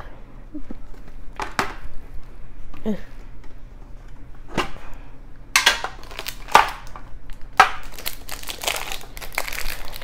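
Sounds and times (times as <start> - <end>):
plastic wrapping crinkling: 5.9 - 10.0.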